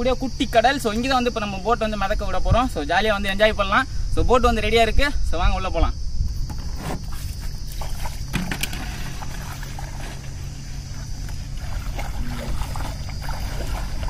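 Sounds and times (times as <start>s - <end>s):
water sloshing and splashing: 6.4s - 14.0s
hollow knocks from raft: 8.2s - 10.2s.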